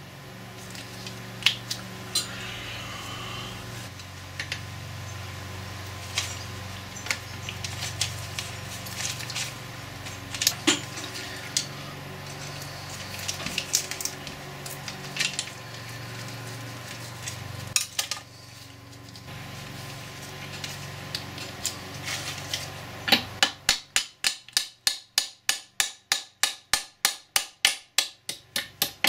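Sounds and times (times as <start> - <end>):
steady low hum: 0.0 - 24.8.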